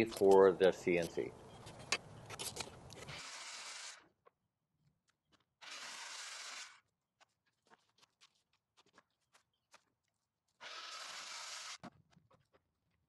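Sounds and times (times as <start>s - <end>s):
circular saw cutting wood: 3.0s - 4.1s, 5.6s - 6.8s, 10.6s - 11.9s.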